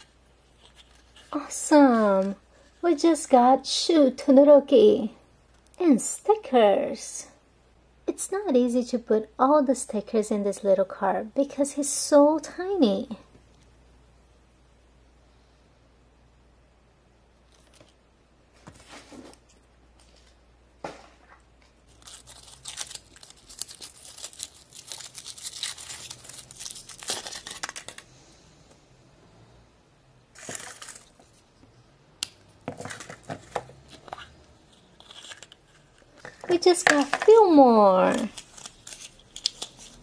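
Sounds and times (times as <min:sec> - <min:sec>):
foil wrapper crinkling and tearing: 0:21.8 - 0:28.1, 0:30.4 - 0:31.2, 0:35.0 - 0:40.0.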